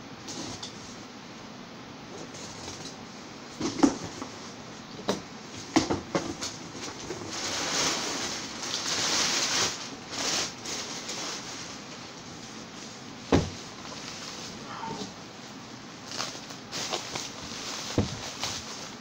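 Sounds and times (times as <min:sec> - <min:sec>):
packing wrap crinkling: 0:06.4 - 0:14.6, 0:16.0 - 0:19.0
cardboard box flaps thumping: 0:13.3 - 0:13.6, 0:17.9 - 0:18.3.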